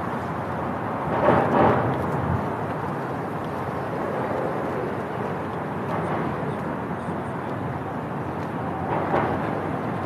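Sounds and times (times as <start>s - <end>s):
wind on microphone: 0.0s - 10.0s.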